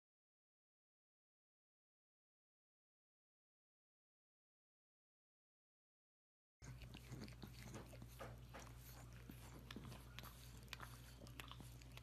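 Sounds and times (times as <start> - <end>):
dog chewing wet clicks: 6.6 - 12.0
low steady hum: 6.6 - 12.0.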